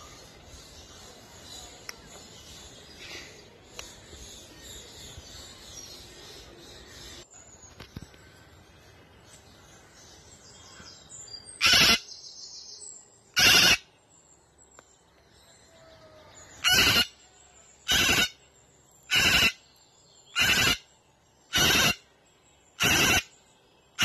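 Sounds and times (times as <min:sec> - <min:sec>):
cockatoo screeching: 0:11.6 - 0:12.0, 0:13.4 - 0:13.8, 0:16.6 - 0:17.1, 0:17.9 - 0:18.3, 0:19.1 - 0:19.6, 0:20.4 - 0:20.8, 0:21.5 - 0:22.0, 0:22.8 - 0:23.3.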